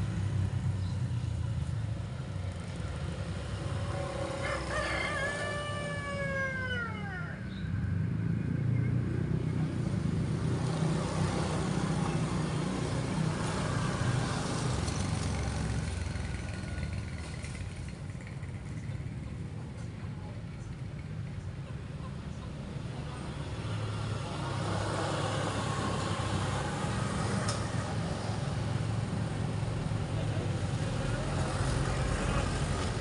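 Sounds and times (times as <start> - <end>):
rooster crowing: 4.0 - 7.6.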